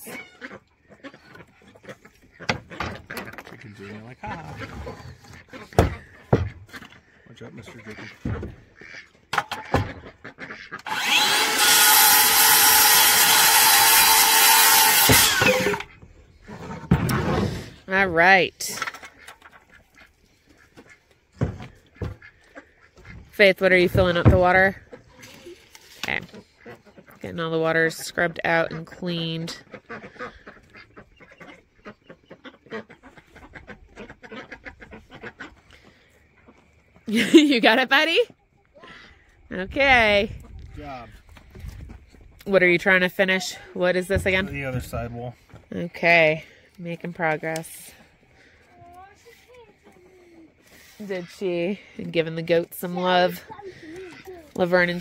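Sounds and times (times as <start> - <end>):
chickens clucking: 0.0 - 11.8, 14.1 - 37.5, 46.5 - 55.0
circular saw cutting wood: 10.8 - 17.8.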